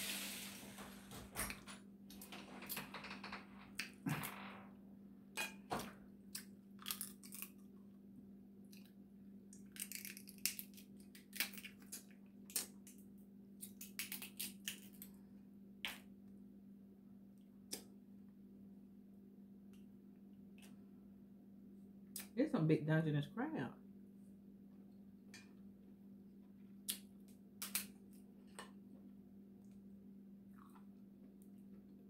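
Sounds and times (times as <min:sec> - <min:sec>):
crab shells cracking: 0:06.3 - 0:07.7, 0:09.5 - 0:13.0, 0:13.6 - 0:15.1, 0:27.6 - 0:28.0.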